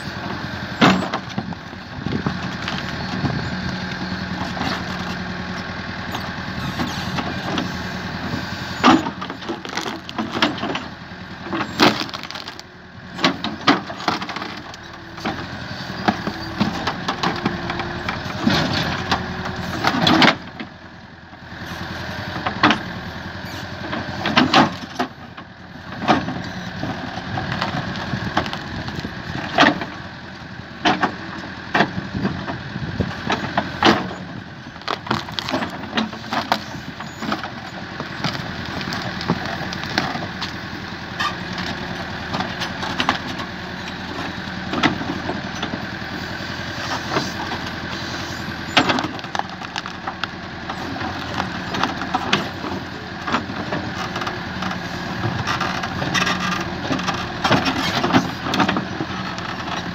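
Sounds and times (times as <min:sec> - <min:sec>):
diesel engine running under load: 0:00.0 - 0:59.9.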